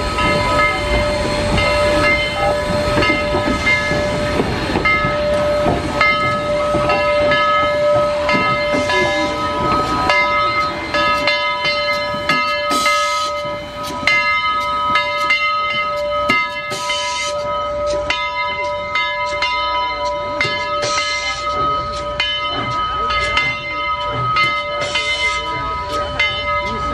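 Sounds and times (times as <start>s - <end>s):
locomotive bell ringing: 0.0s - 26.9s
steam hiss bursts: 12.0s - 14.0s.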